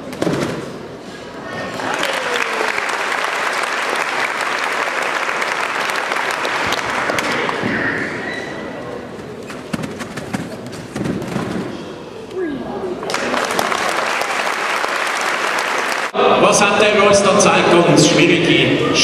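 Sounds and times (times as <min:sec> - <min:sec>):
audience clapping: 0:01.8 - 0:07.7, 0:13.0 - 0:16.2.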